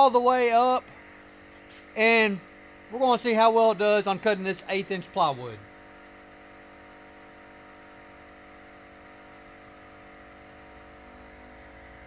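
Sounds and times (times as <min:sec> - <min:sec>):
air pump hissing: 0:00.0 - 0:05.6
faint electric hum: 0:00.0 - 0:12.0.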